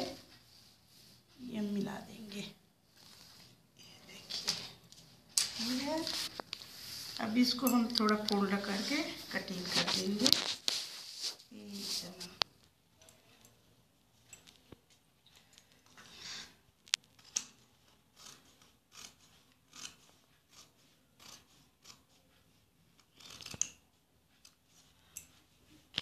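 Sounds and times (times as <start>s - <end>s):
scissors snipping fabric: 17.2s - 22.2s, 23.0s - 23.8s.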